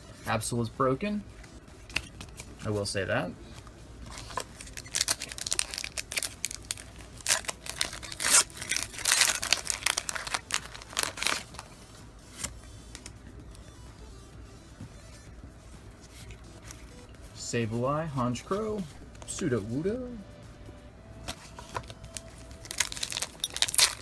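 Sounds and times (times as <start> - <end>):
cards being handled: 1.3 - 2.9, 3.5 - 13.7, 14.8 - 17.3, 21.2 - 24.0
foil wrapper crinkling and tearing: 4.1 - 11.7, 21.7 - 24.0.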